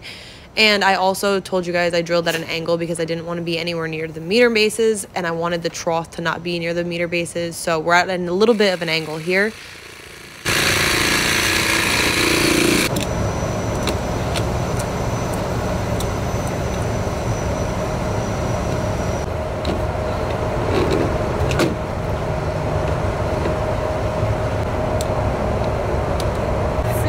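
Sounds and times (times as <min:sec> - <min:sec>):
cordless power tool running: 0:08.4 - 0:19.3
engine rumble with hum: 0:12.8 - 0:27.0.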